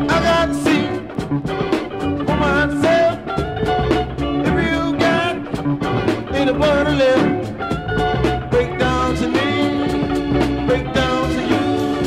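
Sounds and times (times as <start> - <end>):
person singing: 0.0 - 1.2, 2.2 - 3.4, 4.4 - 5.6, 6.2 - 7.6, 8.5 - 12.0
upbeat band music: 0.0 - 12.0.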